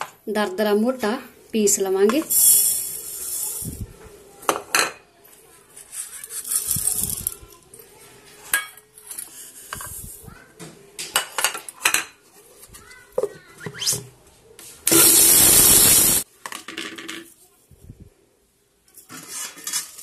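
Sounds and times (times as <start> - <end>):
grinder motor running: 14.9 - 16.2.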